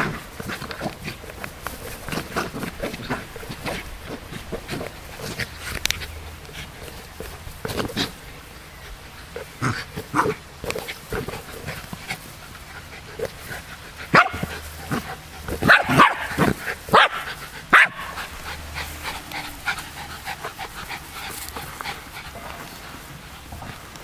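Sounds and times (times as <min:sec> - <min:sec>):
dogs playing: 0:00.0 - 0:24.0
dogs barking: 0:14.0 - 0:20.0.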